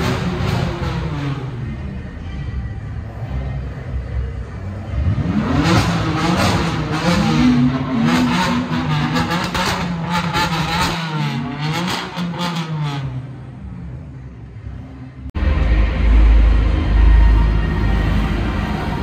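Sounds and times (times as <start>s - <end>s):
car engine revving hard: 5.0s - 13.2s.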